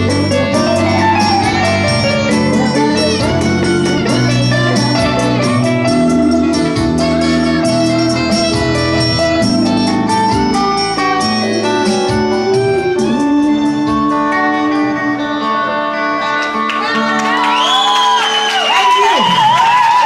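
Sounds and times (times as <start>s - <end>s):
backing beat and bass: 0.0s - 14.8s
electric guitar with bent notes: 0.0s - 20.0s.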